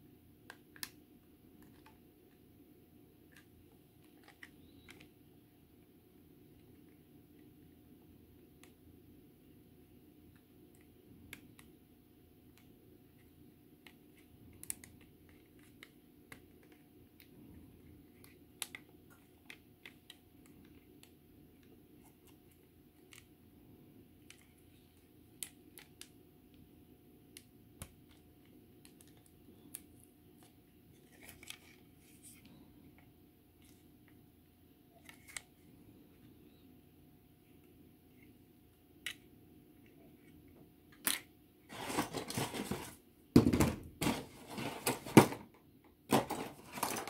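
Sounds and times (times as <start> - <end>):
faint steady hum: 0.0 - 47.0
plastic parts clicking and tapping: 40.9 - 47.0.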